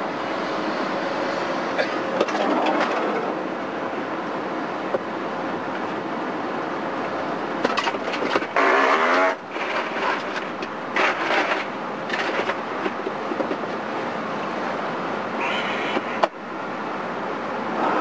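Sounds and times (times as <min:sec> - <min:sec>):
vehicle noise humming: 0:00.0 - 0:18.0.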